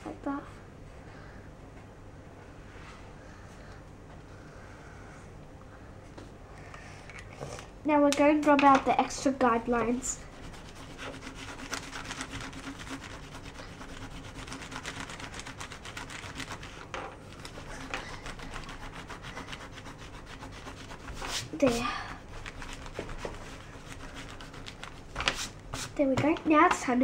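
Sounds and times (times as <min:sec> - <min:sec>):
eraser rubbing on paper: 0:10.0 - 0:16.8, 0:17.4 - 0:26.0.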